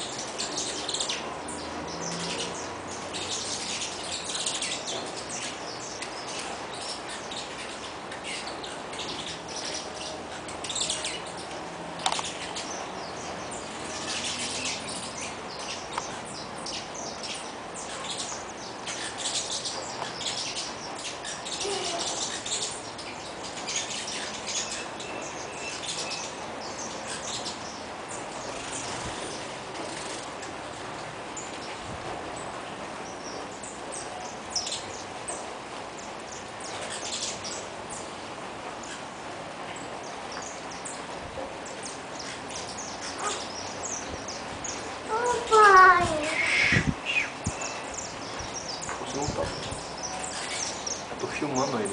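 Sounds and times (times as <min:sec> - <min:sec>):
finches chirping: 0:00.0 - 0:30.3, 0:31.4 - 0:38.2, 0:38.8 - 0:51.9
steady background hiss: 0:00.0 - 0:51.9
sharp clicks: 0:12.0 - 0:12.4.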